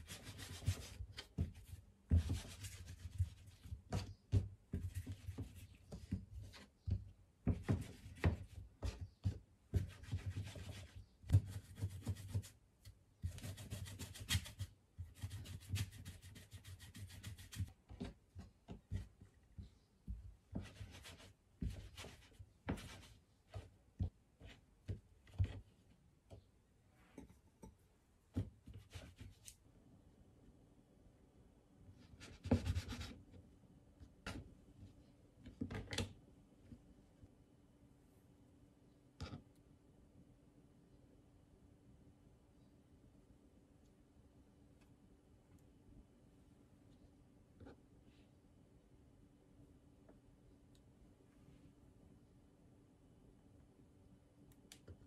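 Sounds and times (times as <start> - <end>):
hands rubbing dough: 0.0 - 12.6, 13.2 - 25.6.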